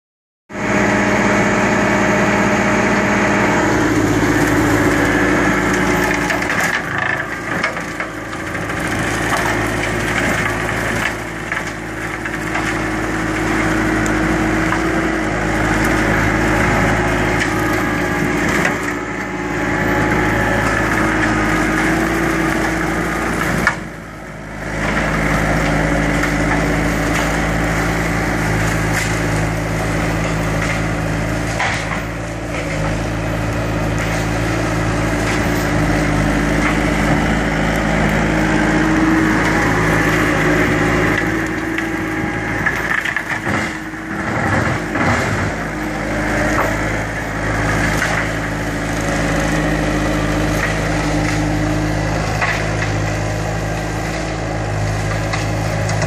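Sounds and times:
diesel engine running: 0.5 - 56.0
wood crunching and splintering: 3.5 - 56.0.

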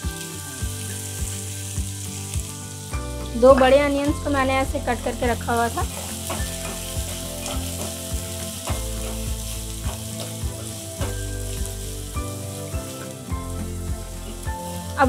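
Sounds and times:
onions sizzling in hot oil: 0.0 - 15.0
wooden spatula scraping a pan: 5.6 - 11.8.

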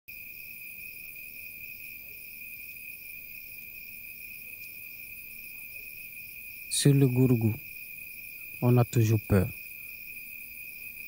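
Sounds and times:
crickets trilling: 0.1 - 11.0.

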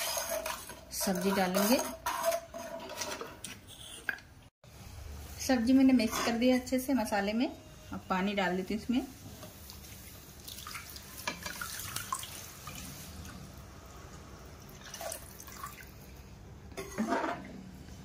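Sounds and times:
metal ladle stirring in pan: 0.0 - 3.4, 5.8 - 6.6.

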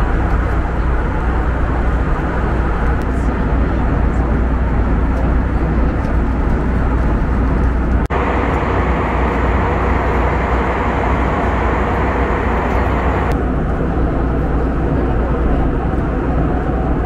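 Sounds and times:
deep rumble: 0.0 - 17.0
cabin airflow: 0.2 - 16.9
aircraft engine drone: 7.9 - 16.8.

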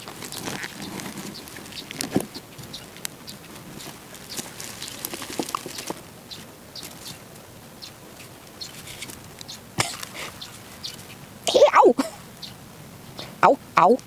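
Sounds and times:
hand weeder scraping soil: 0.0 - 6.0
soil crumbling and pattering: 0.0 - 7.5.

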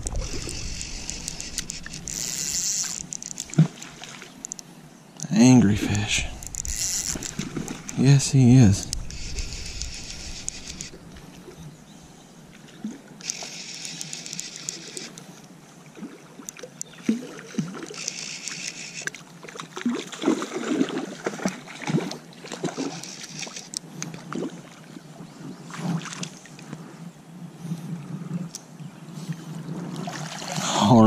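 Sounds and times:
fishing reel winding: 0.0 - 3.6, 5.9 - 8.2, 8.8 - 11.0, 13.2 - 15.2, 17.3 - 19.2, 22.8 - 23.9
water splashing: 0.0 - 4.6, 5.8 - 11.6, 15.9 - 25.0, 29.9 - 31.0.

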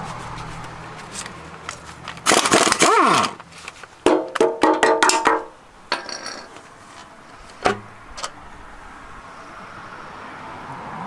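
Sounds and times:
sharp metal knock: 4.0 - 6.2, 7.6 - 7.9
metal tools clinking: 4.1 - 8.4.

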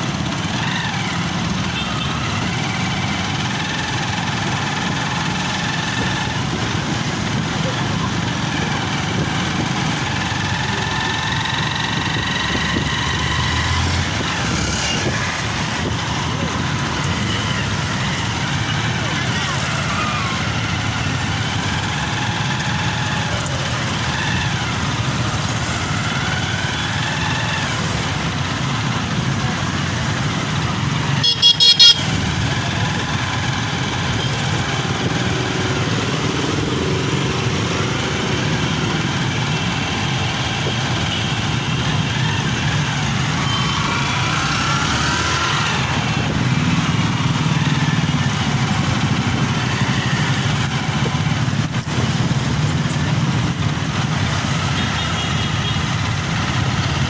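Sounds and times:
small motorcycle engines revving: 0.0 - 57.0
horn honking: 30.9 - 32.5.

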